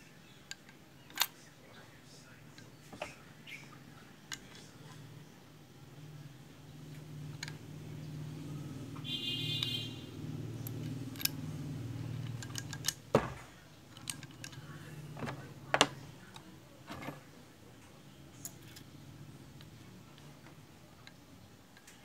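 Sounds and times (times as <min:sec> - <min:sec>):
metal parts clicking: 0:00.5 - 0:01.4, 0:04.3 - 0:04.7, 0:10.6 - 0:17.3, 0:18.4 - 0:18.9.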